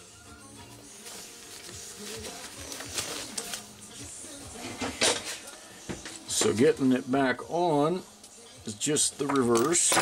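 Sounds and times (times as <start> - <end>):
faint background music: 0.0 - 10.0
tools clicking and rustling: 9.2 - 10.0.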